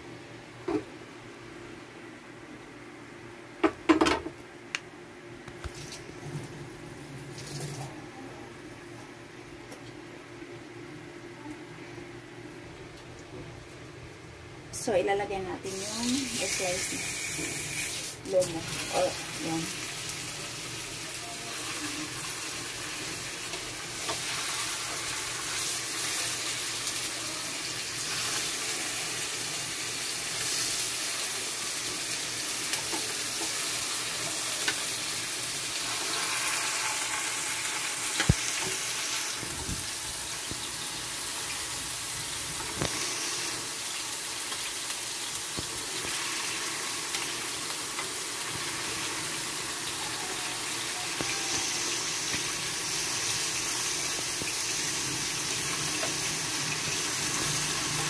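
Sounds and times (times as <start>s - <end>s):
meat sizzling in frying pan: 15.7s - 58.0s.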